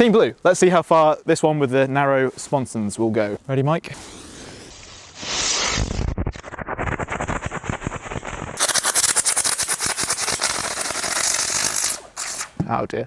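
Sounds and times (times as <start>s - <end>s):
rocket motor crackling hiss: 3.9s - 12.6s.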